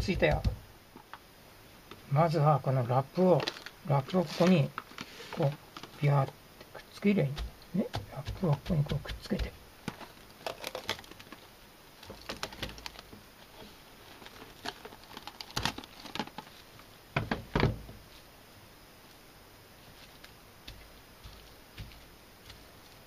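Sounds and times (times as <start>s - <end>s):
cling film crinkling: 3.3s - 7.0s, 9.3s - 16.8s.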